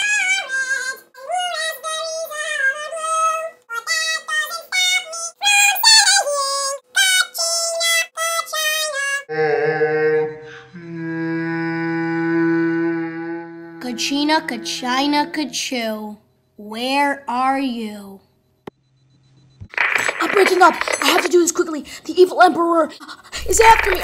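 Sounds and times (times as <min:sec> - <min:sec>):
high-pitched singing voice: 0:00.0 - 0:11.3, 0:12.6 - 0:15.7
low held tone with overtones: 0:12.2 - 0:15.9.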